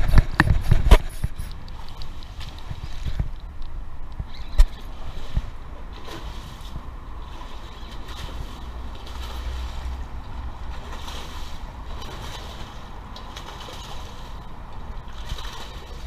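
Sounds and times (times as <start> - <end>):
wind noise on microphone: 0.0 - 16.0
splash in water: 4.6 - 16.0.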